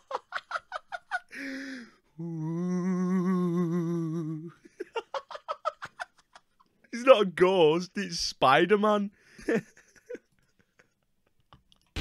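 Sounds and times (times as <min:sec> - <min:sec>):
man laughing: 0:00.0 - 0:01.5, 0:04.5 - 0:06.6, 0:09.4 - 0:11.0
man humming a wavering wail: 0:02.2 - 0:04.6.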